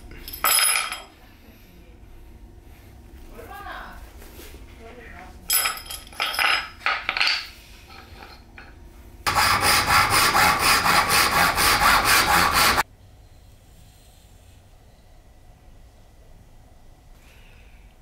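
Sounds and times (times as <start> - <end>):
clinks and knocks of handled parts: 0.1 - 1.2, 5.5 - 8.8
hand saw cutting wood: 9.3 - 12.8.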